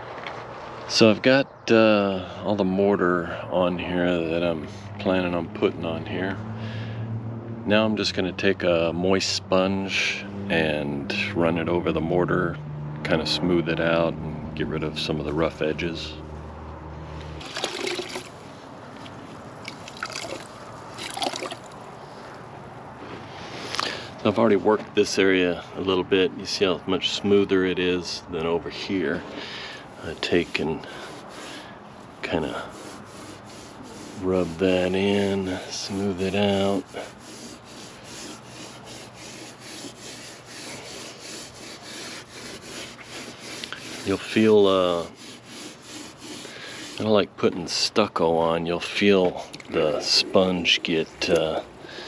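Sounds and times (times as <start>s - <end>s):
water sloshing in bucket: 17.4s - 18.5s, 19.6s - 21.8s
sponge scrubbing mortar on stone: 26.4s - 51.7s.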